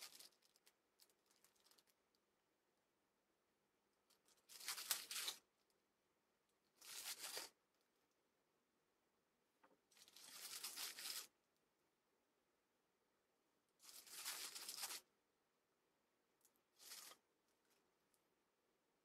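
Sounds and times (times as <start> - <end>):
plastic bags crinkling: 0.0 - 2.0.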